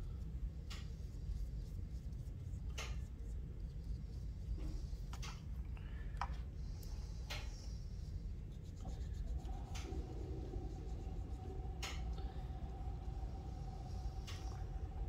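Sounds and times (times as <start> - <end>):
brush bristles on paper: 0.7 - 5.1, 6.6 - 14.6
paintbrush tapping and scraping: 6.2 - 12.8.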